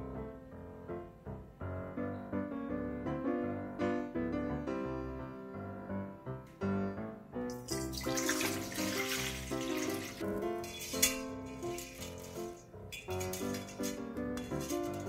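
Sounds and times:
light piano music: 0.0s - 15.0s
water pouring into steel bowl: 7.5s - 15.0s.

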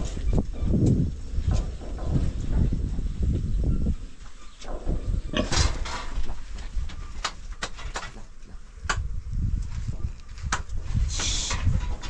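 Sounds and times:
pigs grunting: 5.1s - 6.1s.

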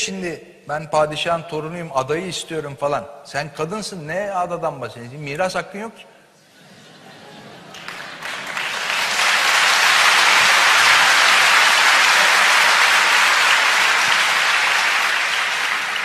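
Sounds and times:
audience applauding: 7.1s - 16.0s.

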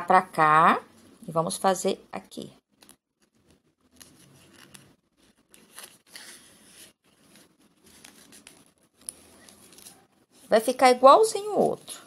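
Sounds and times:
thread drawn through fabric: 2.7s - 10.6s
ribbon rustling: 2.7s - 12.0s.

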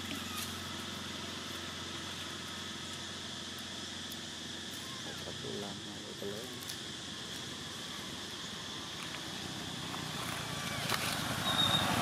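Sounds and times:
high-pitched insect drone: 0.0s - 12.0s.

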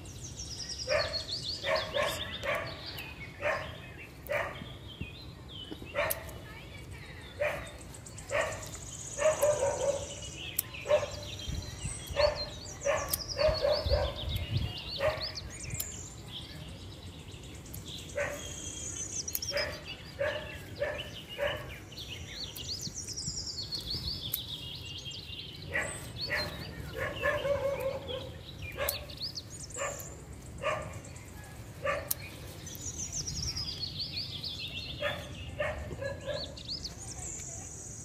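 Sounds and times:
birds chirping: 0.0s - 38.0s
dog barking: 0.9s - 2.8s, 3.4s - 4.6s, 6.0s - 6.3s, 7.4s - 7.7s, 8.3s - 10.2s, 10.8s - 11.3s, 12.2s - 14.2s, 15.0s - 15.4s, 18.2s - 18.5s, 19.5s - 21.7s, 25.7s - 29.1s, 29.8s - 30.0s, 30.6s - 31.0s, 31.8s - 32.2s, 35.0s - 36.6s.

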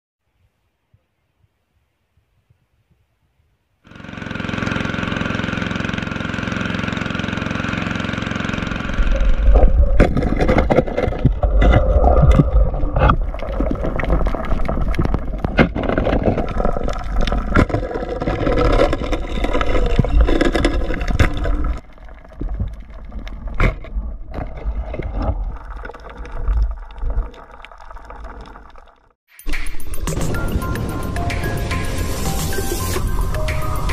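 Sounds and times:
underwater rumble with knocks: 9.0s - 29.0s
even tones: 29.4s - 33.9s.

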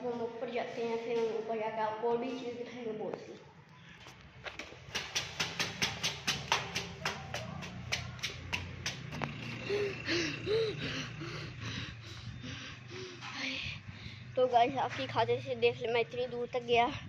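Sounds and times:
footsteps running up stairs: 4.5s - 10.9s
person panting: 9.2s - 14.4s.

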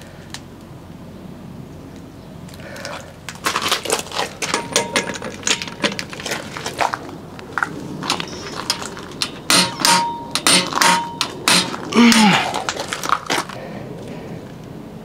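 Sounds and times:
wrench squeaks: 8.1s - 11.9s
torque wrench ratchet clicks: 8.7s - 11.8s.

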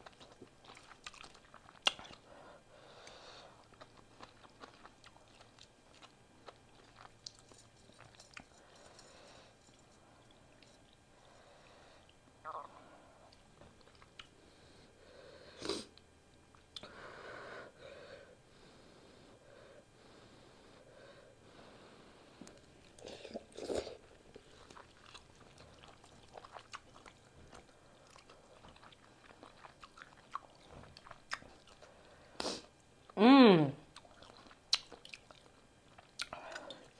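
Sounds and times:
person chewing noodles: 0.0s - 12.6s, 13.2s - 14.6s, 22.4s - 33.2s, 33.9s - 36.9s.

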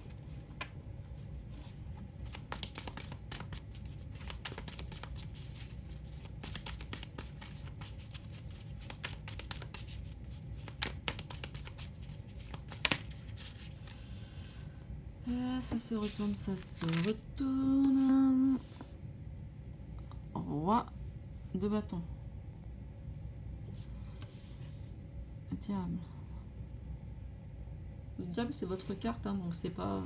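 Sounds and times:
low steady hum: 0.0s - 30.0s
cards shuffling and riffling: 2.2s - 14.0s, 16.0s - 17.2s.

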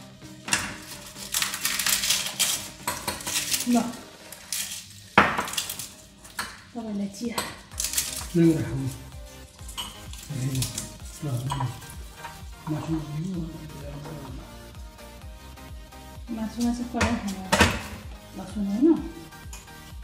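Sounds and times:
dishes and cutlery clinking: 0.5s - 9.0s, 9.6s - 13.2s.

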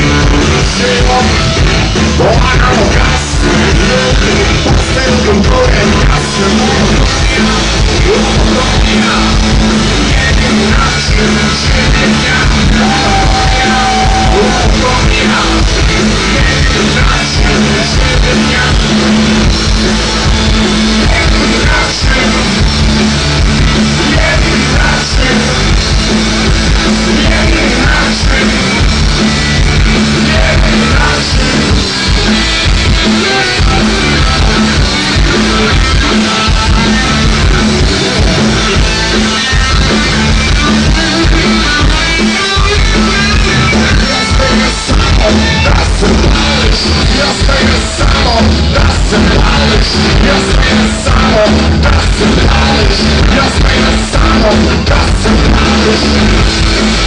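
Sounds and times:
punk rock band playing: 0.0s - 57.0s
singer shouting into microphone: 10.4s - 19.0s.

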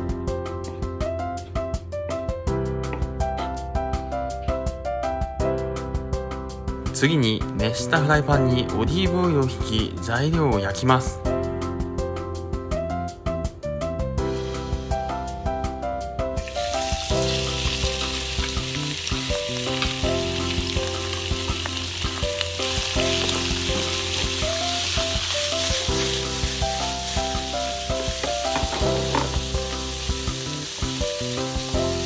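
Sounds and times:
background music: 0.0s - 32.0s
meat sizzling in a frying pan: 16.4s - 32.0s.

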